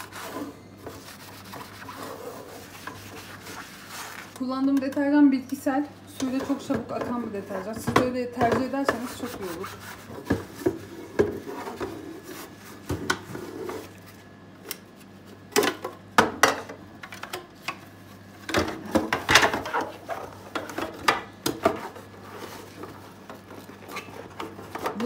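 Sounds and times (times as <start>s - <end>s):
sponge scrubbing plastic tank: 0.0s - 4.4s, 8.9s - 14.0s.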